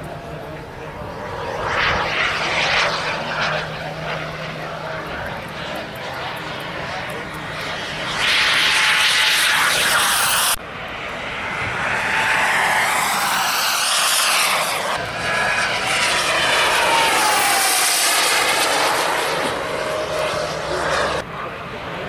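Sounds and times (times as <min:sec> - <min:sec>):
model airplane engine flying past: 0:00.0 - 0:22.0.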